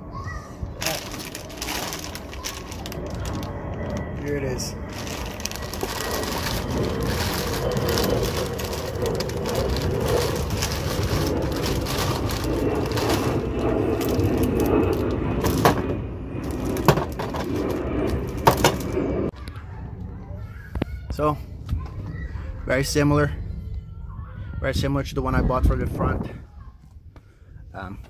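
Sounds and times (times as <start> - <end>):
plastic wrapping crinkling: 0.8 - 15.8.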